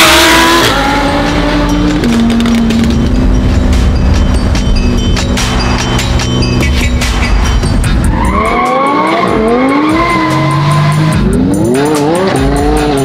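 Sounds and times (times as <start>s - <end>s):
sports car engine revving: 0.0s - 3.8s, 8.3s - 13.0s
music with a steady beat: 0.1s - 13.0s.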